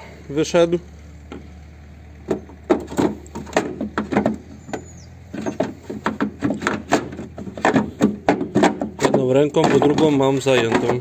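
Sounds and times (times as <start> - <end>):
plastic tank knocking and scraping: 2.2 - 11.0.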